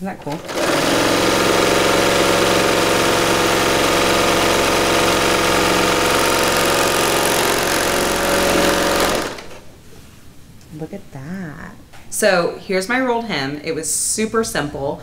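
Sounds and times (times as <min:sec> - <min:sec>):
overlocker sewing machine running: 0:00.2 - 0:09.6.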